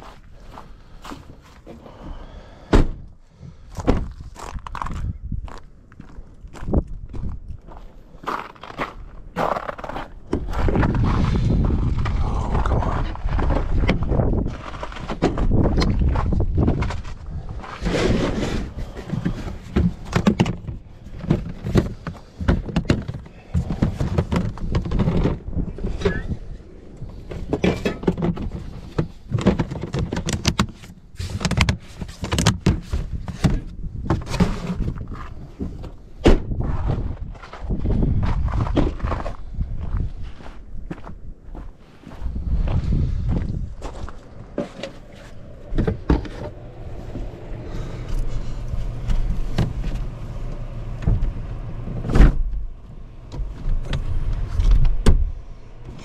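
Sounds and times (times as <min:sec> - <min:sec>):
low rumble on microphone: 0:00.0 - 0:29.5, 0:32.8 - 0:56.0
plastic boxes knocking and clattering: 0:17.9 - 0:26.2, 0:27.2 - 0:35.8
footsteps on ground: 0:36.6 - 0:45.5.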